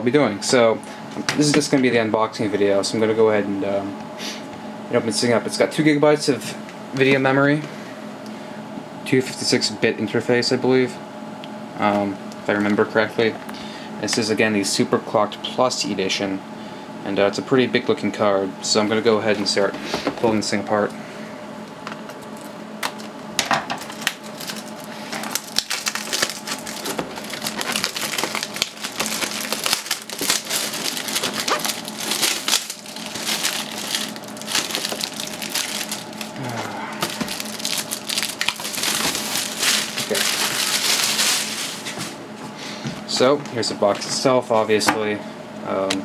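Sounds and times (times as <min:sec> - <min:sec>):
plastic shrink-wrap crinkling: 0:23.8 - 0:42.2.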